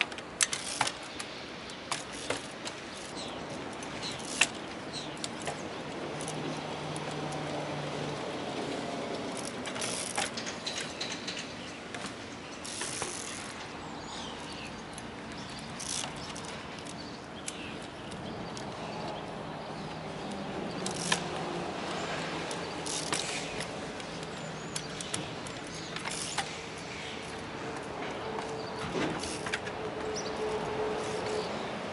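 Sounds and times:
bicycle freewheel ratcheting: 0:00.4 - 0:01.3, 0:01.9 - 0:07.6, 0:09.3 - 0:11.5, 0:12.6 - 0:13.6, 0:14.9 - 0:17.9, 0:20.2 - 0:28.6, 0:29.2 - 0:29.7, 0:30.4 - 0:31.4.

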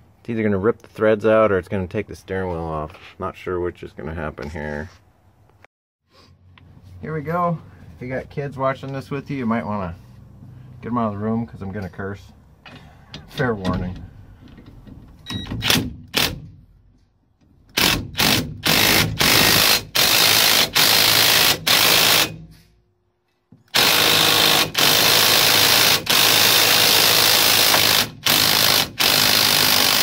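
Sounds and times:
impact driver hammering: 0:17.7 - 0:22.5, 0:23.7 - 0:30.0.

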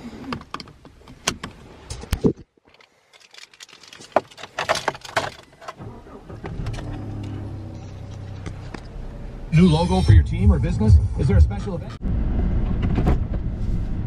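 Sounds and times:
seatbelt buckling clicks: 0:00.2 - 0:05.0
truck engine starting and idling: 0:05.6 - 0:14.0.

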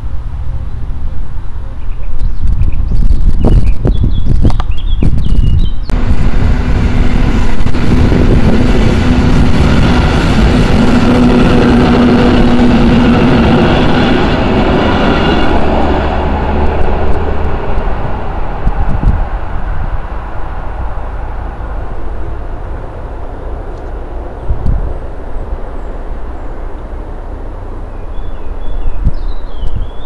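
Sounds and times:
train hum: 0:00.0 - 0:30.0
train wheels rumbling on rails: 0:00.0 - 0:30.0.

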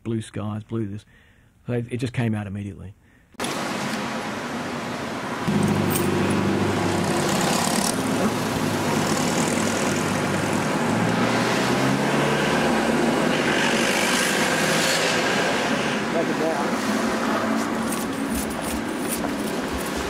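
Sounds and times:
cars driving past: 0:03.4 - 0:20.0.

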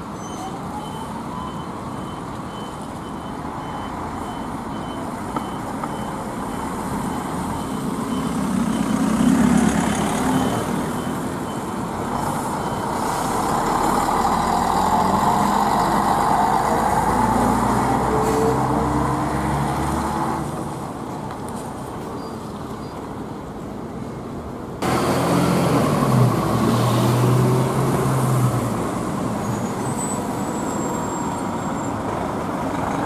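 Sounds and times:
diesel bus engines pulling away: 0:00.0 - 0:23.3, 0:24.8 - 0:33.0.

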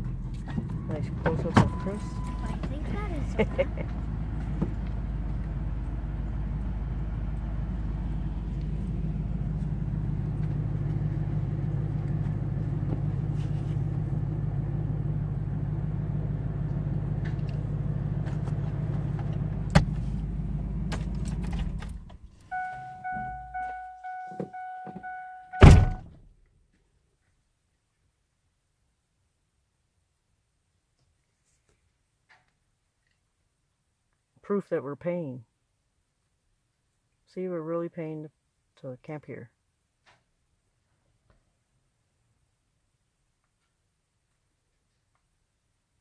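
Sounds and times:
truck engine running: 0:00.0 - 0:26.1
electronic warning chime: 0:01.6 - 0:02.6, 0:22.5 - 0:26.0
door shutting thunk: 0:19.7 - 0:20.0, 0:25.6 - 0:26.1.

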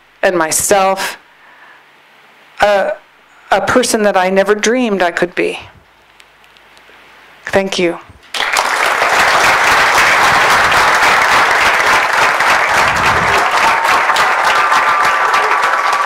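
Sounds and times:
audience applauding: 0:08.3 - 0:16.0.

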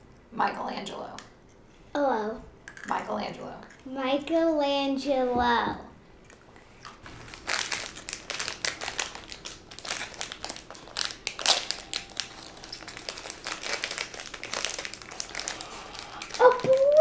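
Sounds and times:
plastic wrapper crackling: 0:06.3 - 0:17.0.

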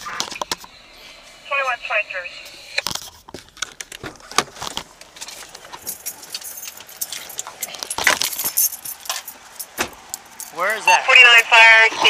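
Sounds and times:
keys jingling: 0:04.9 - 0:10.7.

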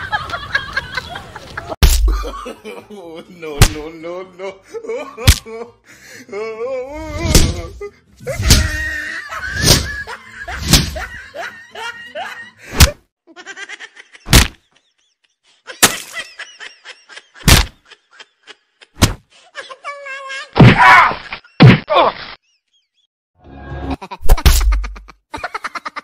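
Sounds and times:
punch and slap hits: 0:01.8 - 0:02.2, 0:03.6 - 0:03.8, 0:05.3 - 0:05.5, 0:07.2 - 0:07.7, 0:08.4 - 0:08.8, 0:09.6 - 0:09.9, 0:10.6 - 0:11.0, 0:12.8 - 0:13.0, 0:14.3 - 0:14.6, 0:17.4 - 0:17.8, 0:19.0 - 0:19.2, 0:20.6 - 0:20.9, 0:24.3 - 0:24.9
bursts of laughter: 0:07.1 - 0:23.0.

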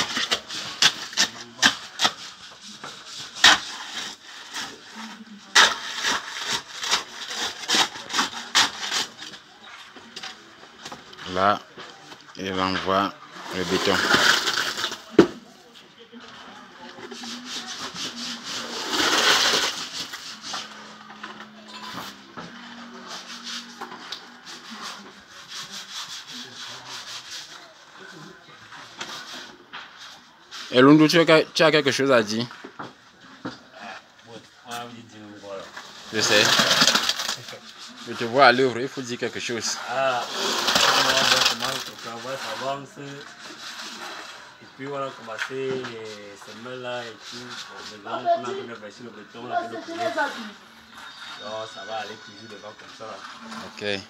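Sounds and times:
spade scraping in concrete: 0:00.0 - 0:09.4, 0:12.6 - 0:15.3, 0:16.9 - 0:27.6, 0:35.7 - 0:48.6, 0:49.5 - 0:54.0.

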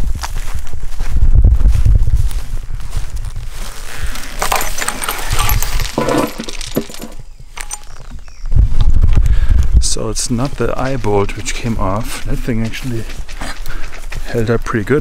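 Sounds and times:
dry branches rustling and crackling: 0:02.1 - 0:09.2
metal chain clinking: 0:04.3 - 0:08.1.

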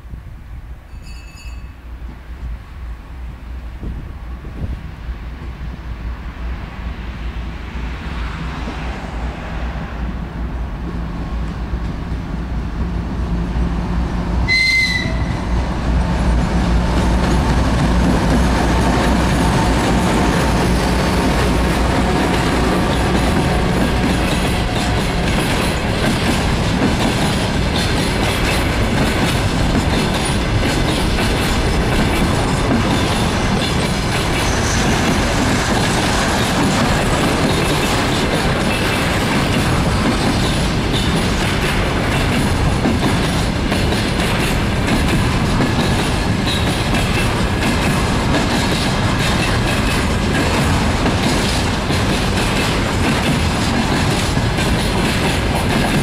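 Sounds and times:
diesel locomotive engine drone: 0:02.0 - 0:56.0
train horn blast: 0:14.5 - 0:15.6.

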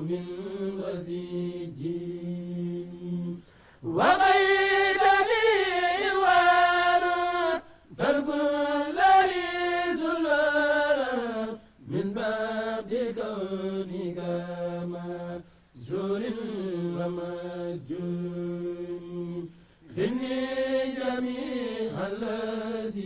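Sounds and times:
men chanting: 0:00.0 - 0:23.0.

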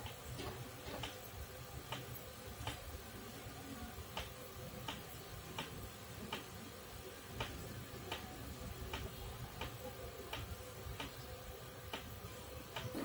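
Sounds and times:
television channel clicks: 0:04.1 - 0:06.5, 0:07.4 - 0:08.3, 0:08.9 - 0:11.2, 0:11.9 - 0:12.1, 0:12.7 - 0:13.0.

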